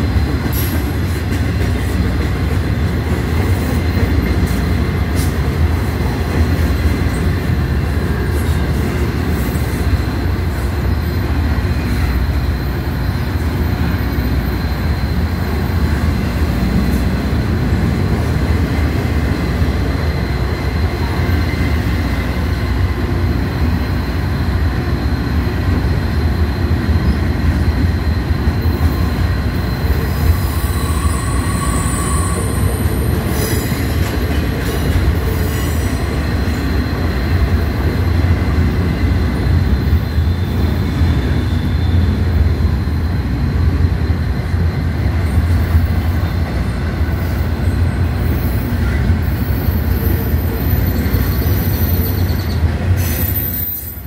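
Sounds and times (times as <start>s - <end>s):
wheels rumbling on rail: 0.0s - 54.0s
high wheel squeals: 10.4s - 17.0s, 28.0s - 34.0s, 39.1s - 42.3s, 47.1s - 54.0s.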